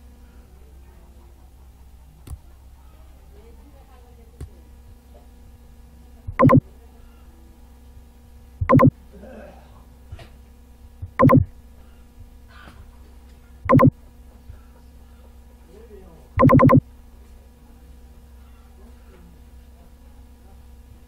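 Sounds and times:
low steady hum: 0.0 - 21.0
loud buzzing tone: 8.6 - 8.9, 11.0 - 11.5, 13.6 - 13.9, 16.4 - 16.8.

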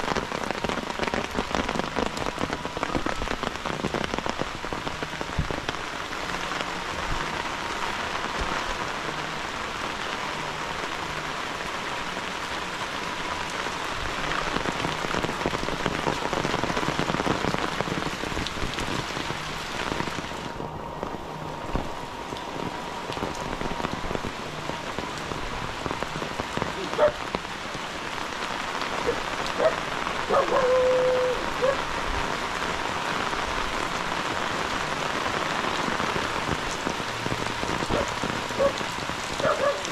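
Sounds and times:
heavy rain on leaves: 0.0 - 39.9.

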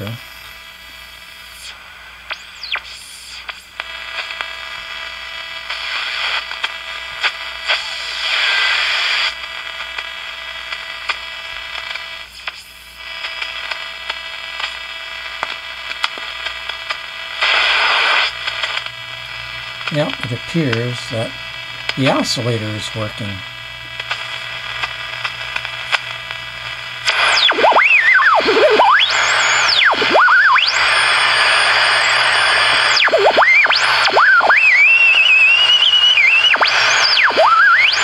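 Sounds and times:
radio static hiss: 0.0 - 38.0
radio clicks: 1.6 - 4.5, 13.2 - 22.5, 23.4 - 38.0
gliding radio whistle: 27.1 - 38.0.

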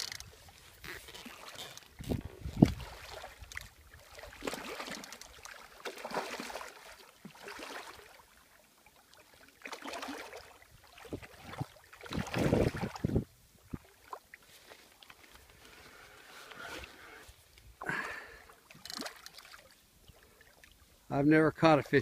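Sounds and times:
fish splashing in water: 2.6 - 13.1, 17.8 - 20.8.

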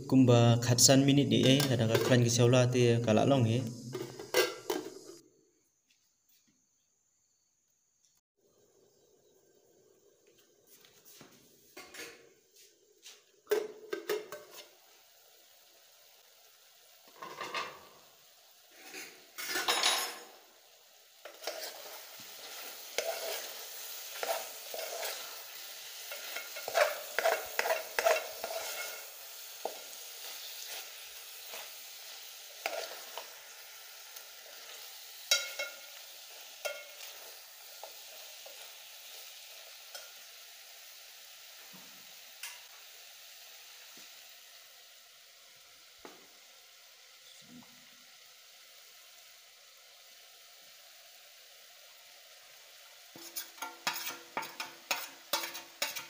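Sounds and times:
beef sizzling in a pot: 0.0 - 5.2, 8.4 - 56.0
spoon stirring and scraping: 21.2 - 40.2, 53.1 - 56.0.

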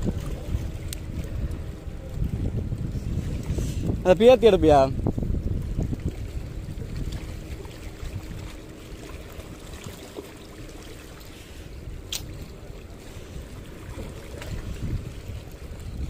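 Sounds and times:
low rumble: 0.0 - 9.6
sea water lapping among boulders: 0.0 - 16.0.

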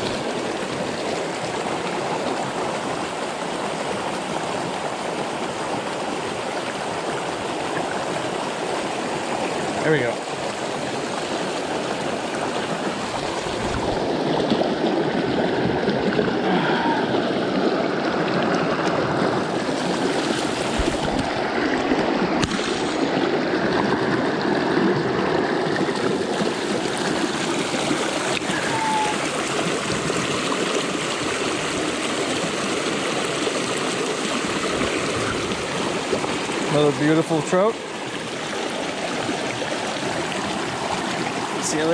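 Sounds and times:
water rushing over rocks: 0.0 - 41.9.

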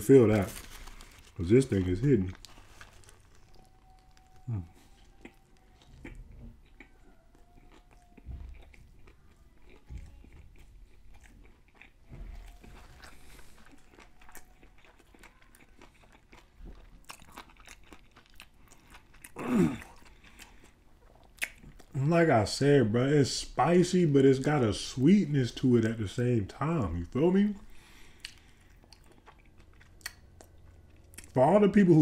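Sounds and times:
soft crunches: 0.1 - 6.9
person chewing crispy food: 0.1 - 22.0, 27.6 - 32.0
mouth sounds: 4.3 - 6.2.

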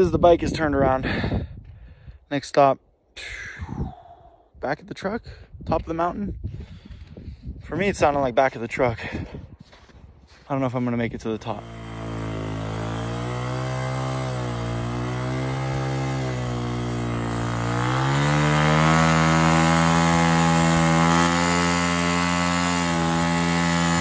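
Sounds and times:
dirt bike engine revving: 11.4 - 24.0.

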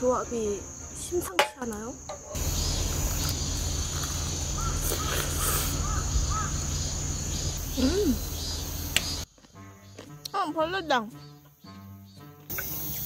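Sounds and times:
insect drone: 0.0 - 13.0
short chirping calls: 2.1 - 9.3
low hum: 2.2 - 9.3.

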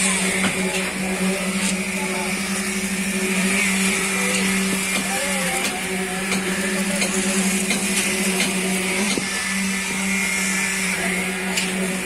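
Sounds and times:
faint voices: 0.0 - 8.9
concrete machinery droning: 0.0 - 12.0.

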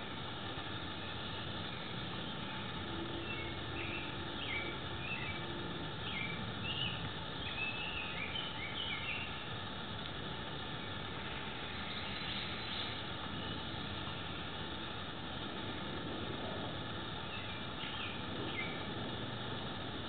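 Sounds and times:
steady background hiss: 0.0 - 20.0
bird chirps: 2.5 - 5.4, 6.0 - 9.4.

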